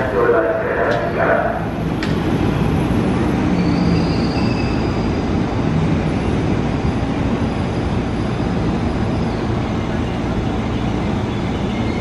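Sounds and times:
electric train rumbling: 0.0 - 12.0.

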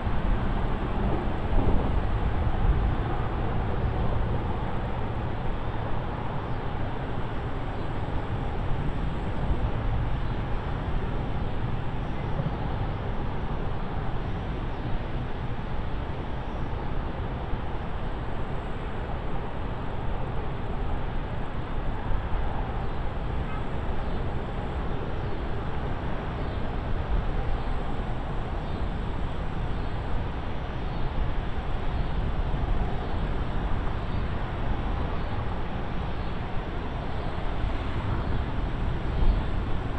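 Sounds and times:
wind noise on microphone: 0.0 - 16.4.

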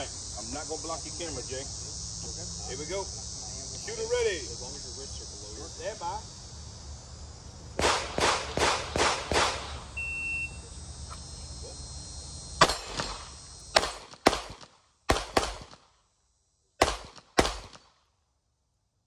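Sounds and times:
pistol shots: 7.8 - 9.8, 12.6 - 15.9, 16.8 - 17.9.

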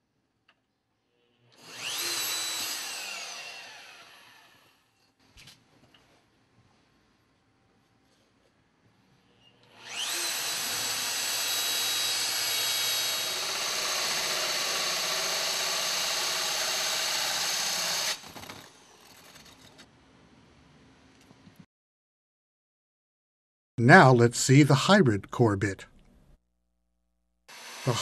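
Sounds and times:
power drill grinding through siding: 1.6 - 4.7, 9.7 - 19.6, 27.5 - 28.0
drill whine: 1.6 - 4.8, 9.6 - 19.4, 27.5 - 28.0.

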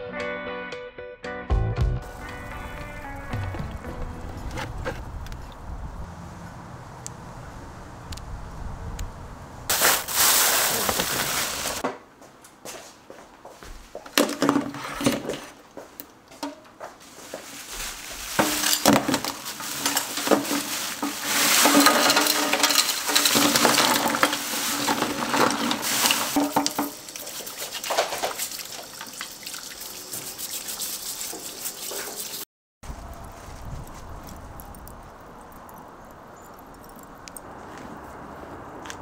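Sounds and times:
things clattering and knocking: 14.0 - 15.6, 16.4 - 17.6, 18.2 - 28.5
water running from a tap: 23.8 - 32.5.

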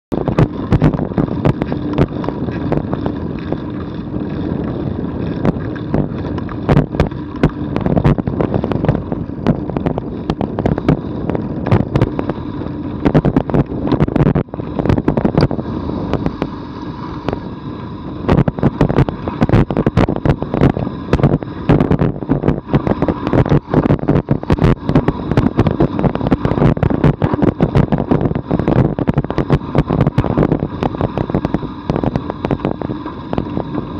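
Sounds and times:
bike knocks and rattles: 0.1 - 15.6
bicycle tyres crunching on gravel: 0.1 - 33.9.

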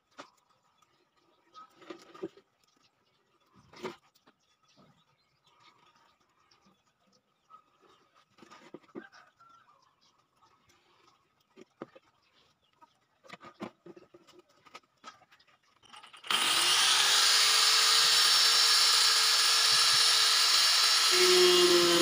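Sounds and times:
angle grinder whining: 16.0 - 22.0.

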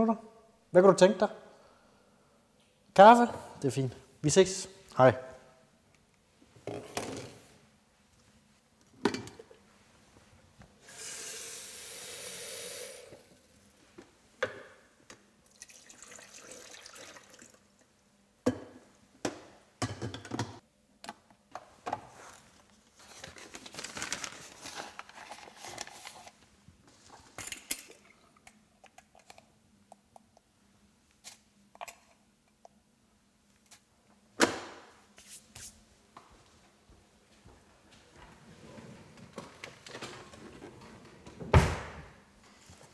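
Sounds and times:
tap water running: 10.8 - 13.3, 15.5 - 17.6.

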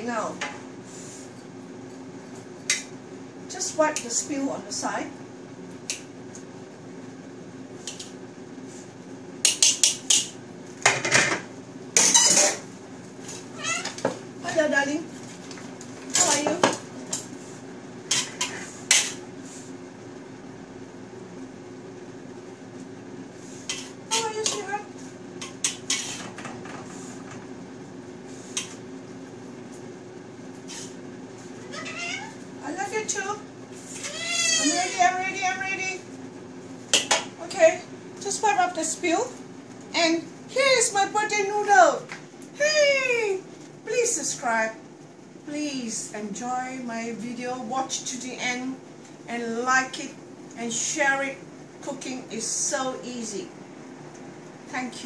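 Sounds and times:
steady low hum: 0.0 - 55.0
tongs scraping a wok: 12.0 - 12.6, 18.1 - 19.2, 23.6 - 24.7, 25.4 - 26.4, 30.6 - 31.0.

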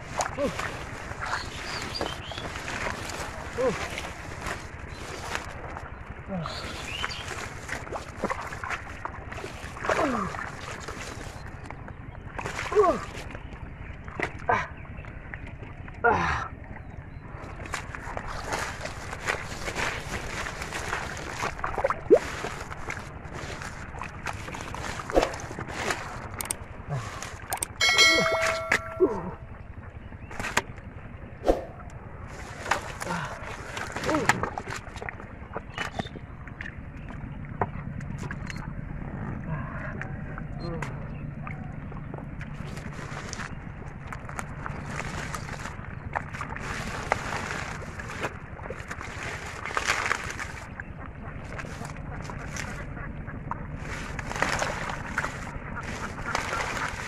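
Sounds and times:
splashing in muddy water: 0.0 - 29.5, 30.2 - 57.0
mud squelching: 0.0 - 57.0
crackles and clicks: 17.7 - 33.1, 40.0 - 57.0.

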